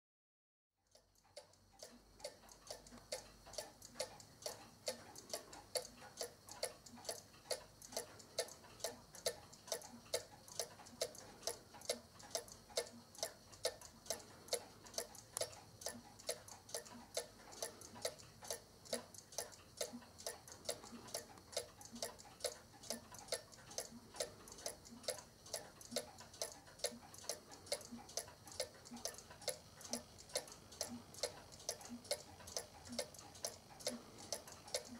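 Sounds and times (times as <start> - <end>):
clock ticking: 0.8 - 34.9.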